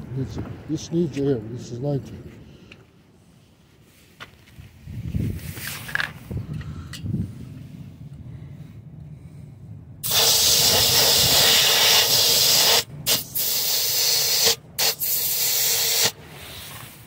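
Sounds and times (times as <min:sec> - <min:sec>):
air hissing from tire valve: 0:10.0 - 0:17.0.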